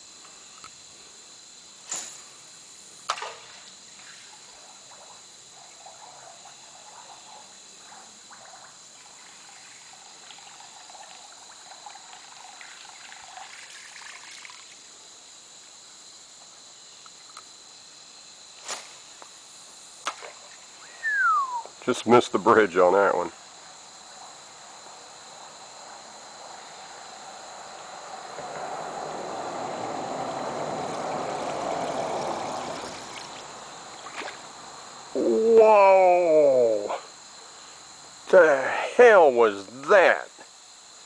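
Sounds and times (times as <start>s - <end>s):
river water trickling: 2.1s - 15.3s, 20.0s - 21.6s, 25.7s - 35.1s.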